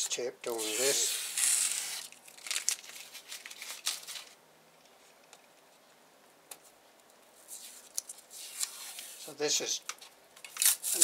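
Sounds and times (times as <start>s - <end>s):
tape tearing rip: 0.5s - 4.3s, 7.6s - 9.4s, 10.5s - 11.0s
fingers rustling at tape: 0.5s - 4.4s, 6.5s - 11.0s.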